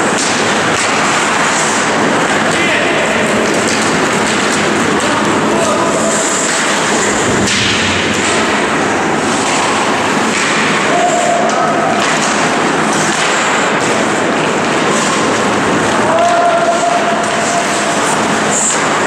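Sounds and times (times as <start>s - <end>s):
crowd noise: 0.0s - 19.0s
hockey sticks clacking: 0.0s - 19.0s
skates scraping ice: 0.0s - 19.0s
people shouting: 9.2s - 12.6s, 14.8s - 19.0s.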